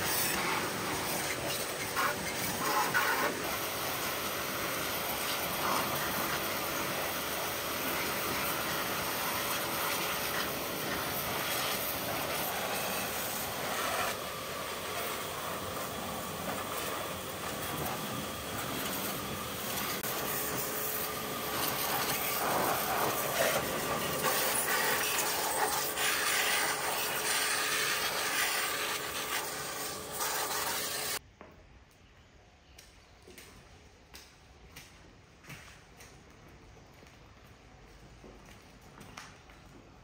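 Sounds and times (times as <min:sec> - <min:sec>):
washer motor whine: 0:00.0 - 0:31.2
pressure washer jet spattering metal: 0:14.9 - 0:31.2.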